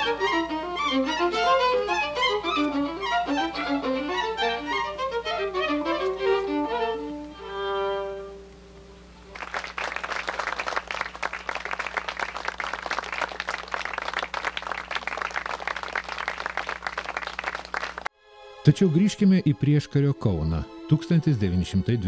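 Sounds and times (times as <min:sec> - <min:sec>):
violin duet: 0:00.0 - 0:09.3, 0:18.3 - 0:22.0
audience applauding: 0:09.2 - 0:18.1.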